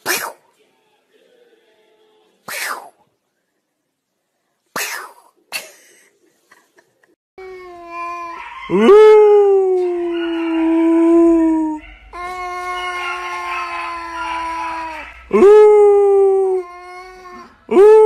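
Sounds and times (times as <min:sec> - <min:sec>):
animal howling: 0:07.8 - 0:18.0.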